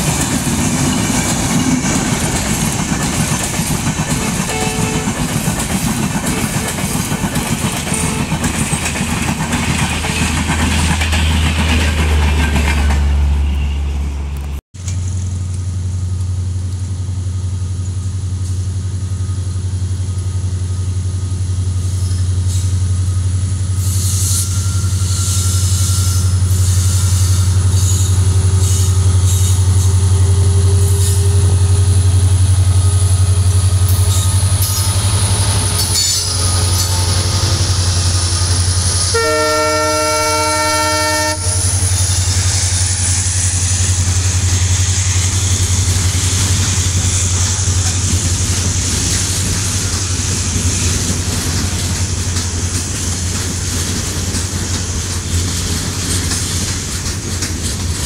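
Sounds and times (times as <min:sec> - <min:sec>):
train wheels clattering on rails: 0:00.0 - 0:13.2, 0:23.7 - 0:58.0
locomotive horn: 0:04.2 - 0:05.3, 0:07.9 - 0:08.4, 0:39.0 - 0:41.8
locomotive low drone: 0:07.2 - 0:58.0.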